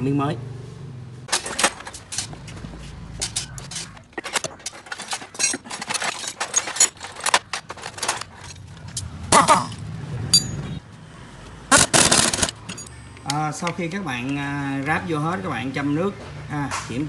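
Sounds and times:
metal tools clinking: 1.3 - 10.8, 12.0 - 13.0.

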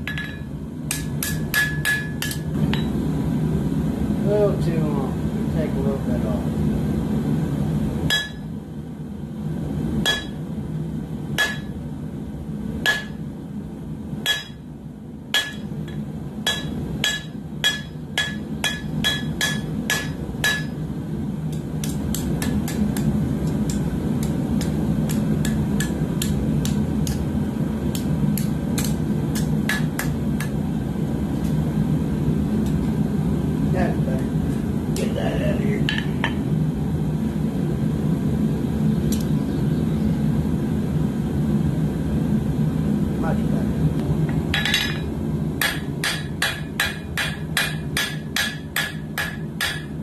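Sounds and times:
hammer striking hot steel on anvil: 0.0 - 3.0, 8.1 - 8.5, 10.0 - 10.4, 11.3 - 11.8, 12.8 - 13.2, 14.2 - 14.7, 15.3 - 20.8, 21.5 - 27.2, 27.9 - 30.6, 35.9 - 36.4, 44.5 - 50.0.

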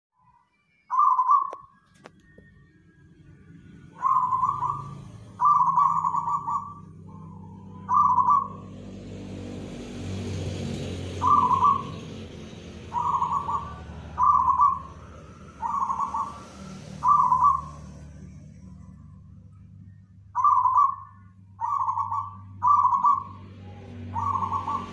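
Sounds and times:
dove cooing: 0.9 - 1.6, 3.9 - 8.9, 11.1 - 18.1, 20.3 - 24.9.

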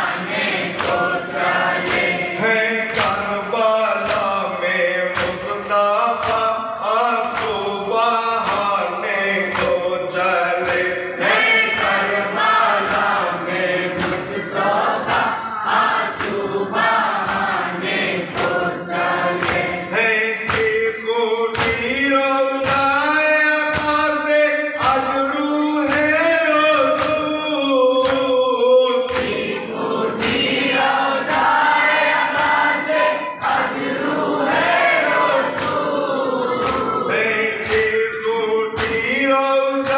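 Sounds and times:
men chanting a lament in unison: 0.0 - 39.9.

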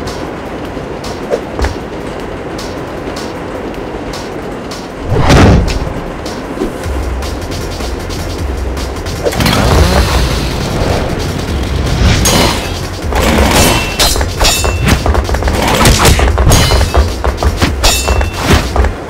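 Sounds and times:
low rumble: 0.0 - 17.8
booming impacts: 5.0 - 6.2
metallic blade clashes: 13.4 - 15.0, 17.8 - 18.6.

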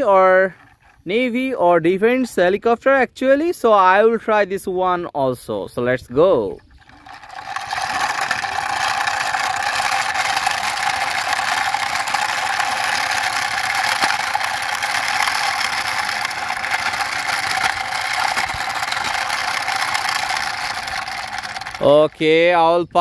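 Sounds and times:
toy rattling whir on concrete: 0.0 - 1.5, 6.4 - 23.0.

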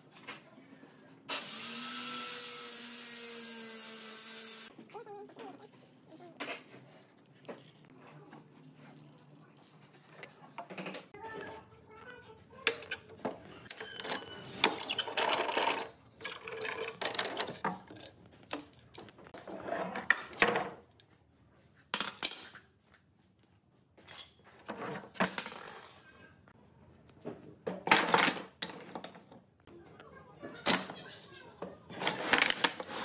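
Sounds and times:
metal clamps clinking and rattling: 12.7 - 19.2
wooden blocks clattering: 31.9 - 33.0.

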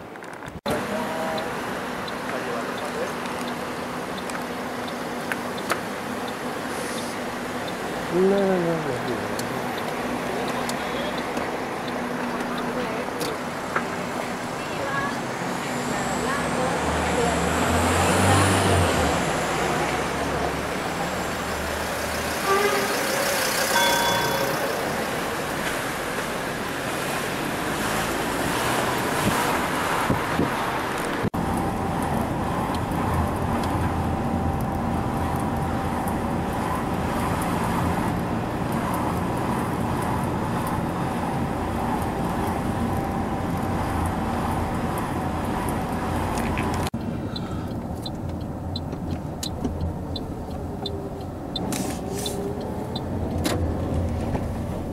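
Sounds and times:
car engine and tyre drone: 0.0 - 54.9
street traffic: 0.0 - 54.9
faint regular ticking: 1.4 - 13.4.

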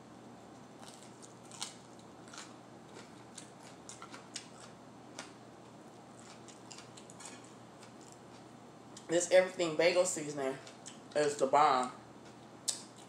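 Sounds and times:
crunchy chewing of pepper: 0.6 - 9.1.

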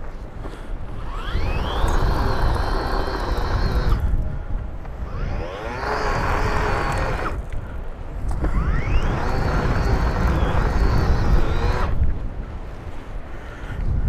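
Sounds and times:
paddles working through gravel: 0.4 - 4.2
power tool motor whine: 0.9 - 4.2, 4.9 - 7.6, 8.3 - 12.0.

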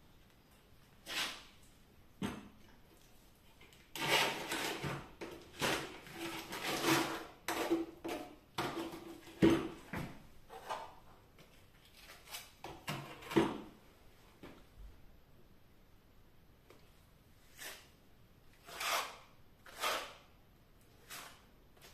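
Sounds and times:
trowel scraping and knocking: 4.0 - 9.8, 18.6 - 20.2.

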